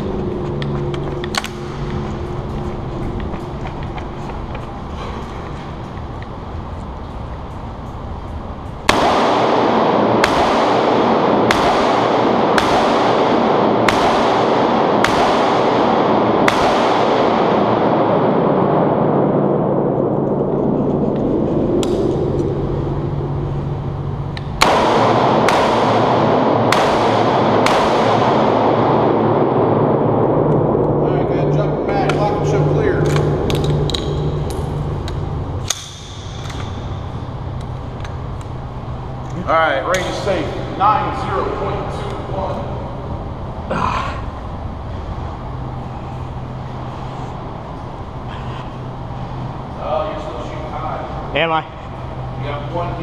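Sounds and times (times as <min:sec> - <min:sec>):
rifle gunshots echoing indoors: 0:08.8 - 0:20.7, 0:21.9 - 0:31.0.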